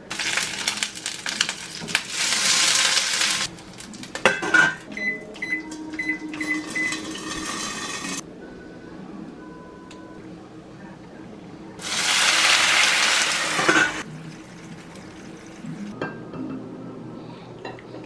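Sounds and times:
dumplings sizzling in oil: 0.0 - 4.2, 11.8 - 15.6
microwave keypad beeps: 4.9 - 7.2.

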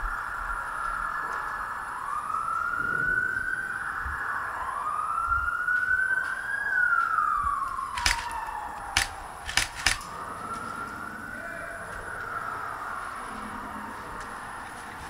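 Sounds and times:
siren wailing: 0.0 - 15.0
sharp snaps: 7.9 - 10.1.

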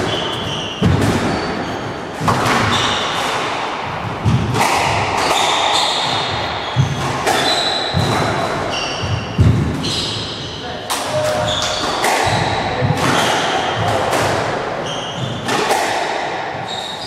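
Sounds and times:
shoes squeaking on wooden floor: 0.0 - 3.2, 5.2 - 10.6, 16.6 - 17.0
squash ball hitting rackets and walls: 0.0 - 17.0.

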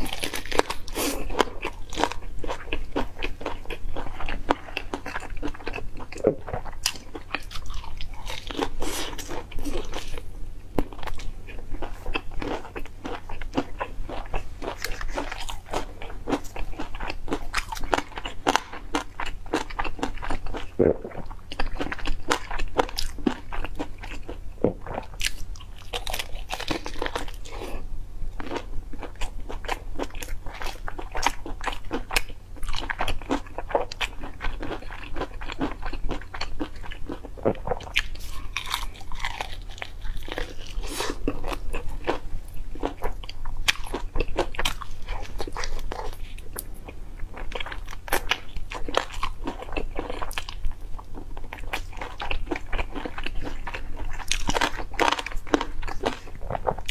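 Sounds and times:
chewing crispy fried chicken: 0.0 - 27.8, 28.4 - 56.9.

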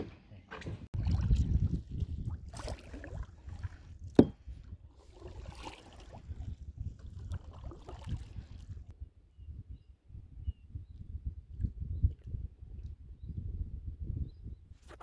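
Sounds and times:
canoe paddles splashing in water: 0.5 - 4.4, 5.0 - 8.6.

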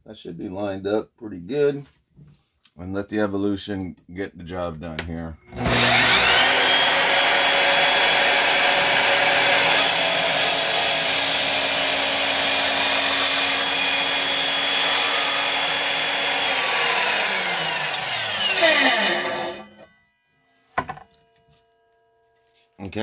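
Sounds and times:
miter saw cutting wood: 5.5 - 19.9
saw blade winding down whine: 5.5 - 19.9.

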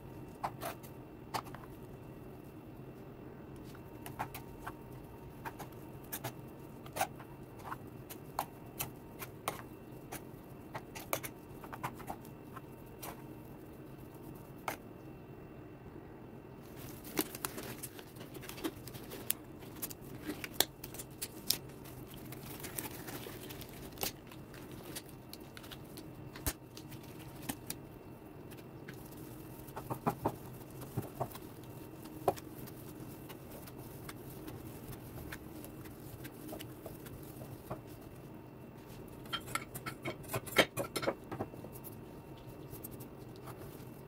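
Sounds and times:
low steady hum: 0.0 - 44.0.

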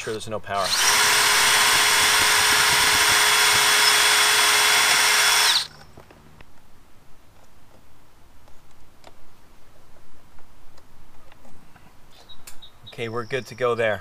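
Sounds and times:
cordless drill running: 0.0 - 5.7.

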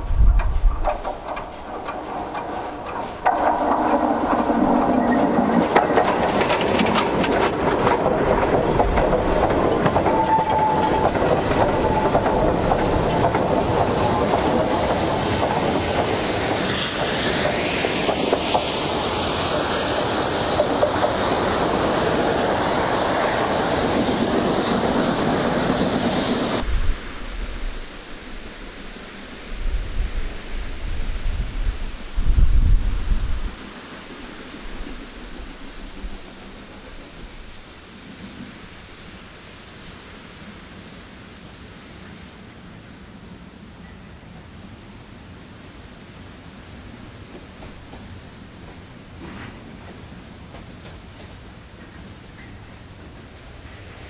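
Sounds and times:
wheels clattering over rails: 0.0 - 26.6, 33.5 - 39.2
steam hissing: 0.0 - 43.4, 44.0 - 54.0.

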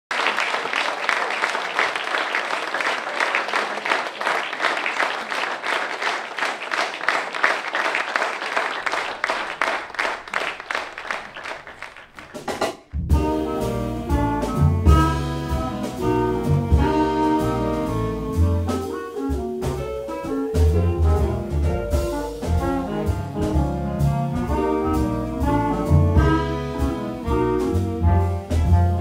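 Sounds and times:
audience applauding: 0.1 - 12.9
jazz band playing: 9.5 - 29.0.

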